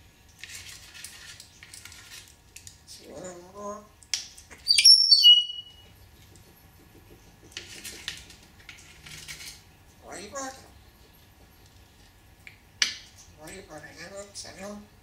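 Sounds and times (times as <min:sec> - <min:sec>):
parrot whistle falling in pitch: 0:04.7 - 0:05.8.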